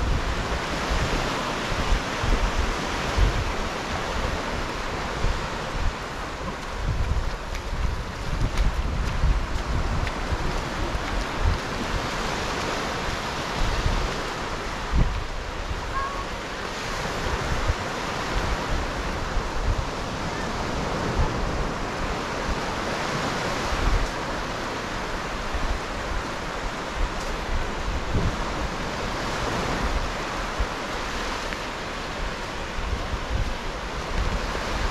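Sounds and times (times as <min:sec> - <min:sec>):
surf washing up sand: 0:00.0 - 0:34.9
wind gusting on microphone: 0:00.0 - 0:34.9.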